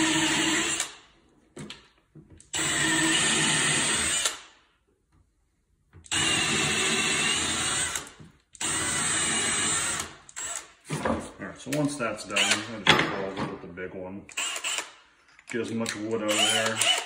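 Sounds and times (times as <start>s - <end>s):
cordless drill boring into wood: 0.0s - 1.0s, 2.5s - 4.5s, 6.1s - 10.7s, 12.3s - 12.8s, 14.3s - 15.0s, 16.1s - 17.0s.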